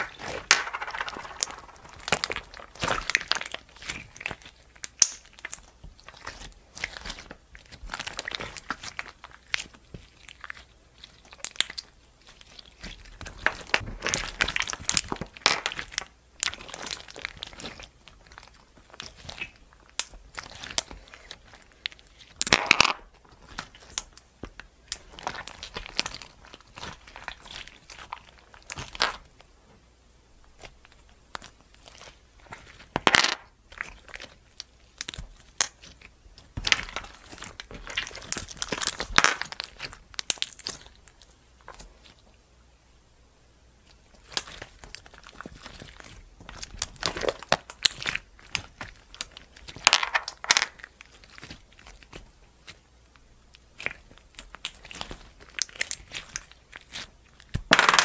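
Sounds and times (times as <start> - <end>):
crackling pops and clicks: 0.0 - 5.6
slime squelching: 0.0 - 22.5, 23.3 - 29.4, 30.5 - 32.9, 33.6 - 42.3, 43.8 - 49.9, 50.7 - 57.7.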